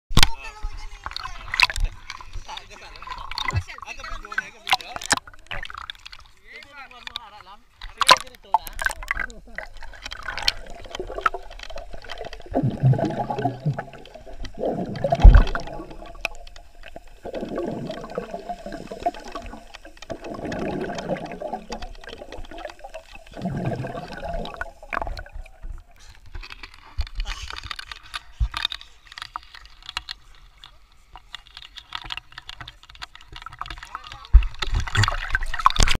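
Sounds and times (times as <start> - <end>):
water splashing: 0.2 - 36.0
underwater bubbling: 0.7 - 36.0
water hissing: 7.7 - 32.0.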